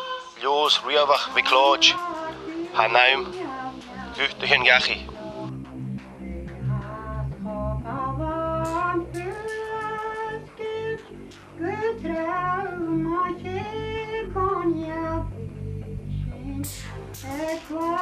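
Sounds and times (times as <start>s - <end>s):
solo voice singing: 0.0s - 5.5s, 6.7s - 11.0s, 11.6s - 15.3s, 16.3s - 18.0s
low steady accompaniment: 0.6s - 18.0s.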